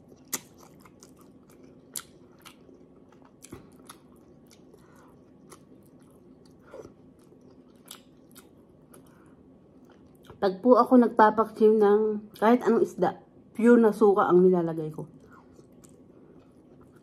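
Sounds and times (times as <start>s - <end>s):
person chewing close up: 0.0s - 10.4s, 15.1s - 17.0s.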